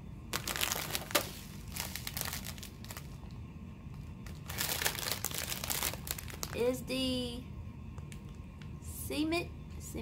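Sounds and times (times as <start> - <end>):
plastic packaging crinkling: 0.3 - 3.2, 4.2 - 6.8.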